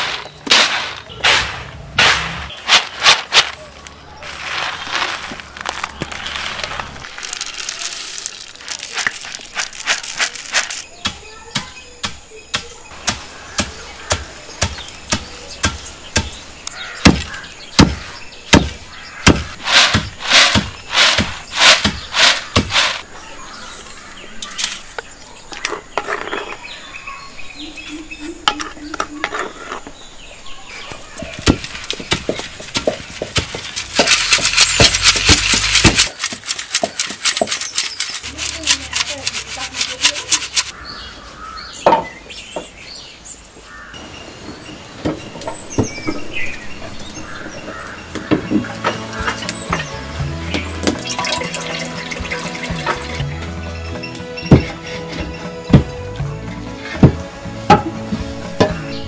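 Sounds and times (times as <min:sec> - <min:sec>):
corn kernels rattling: 0:00.0 - 0:11.0, 0:19.6 - 0:23.0, 0:31.3 - 0:40.8, 0:50.8 - 0:53.3
wooden pestle pounding corn: 0:17.0 - 0:23.0, 0:31.2 - 0:40.7.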